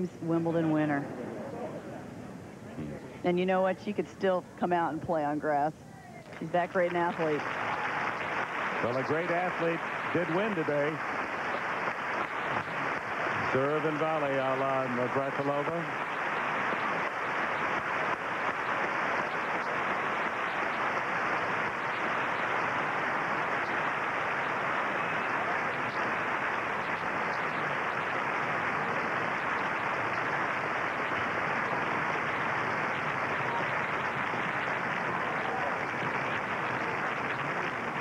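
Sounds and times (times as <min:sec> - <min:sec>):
crowd applauding: 0:06.3 - 0:38.0.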